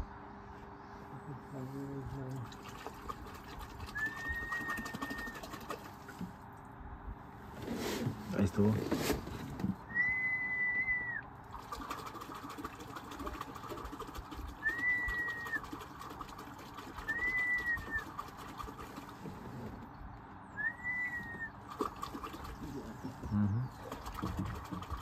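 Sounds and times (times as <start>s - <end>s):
long whistled notes: 9.9s - 11.2s, 20.6s - 21.5s.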